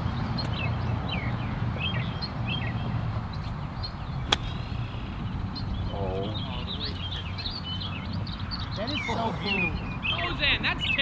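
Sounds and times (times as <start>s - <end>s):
birds chirping: 0.0s - 11.0s
golf club striking ball: 4.2s - 5.2s.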